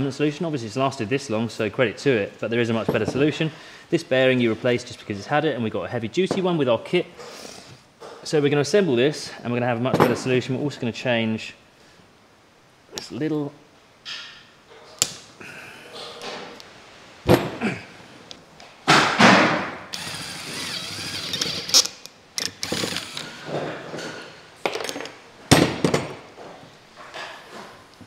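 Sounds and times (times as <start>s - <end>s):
cordless drill boring into metal: 19.9s - 23.4s.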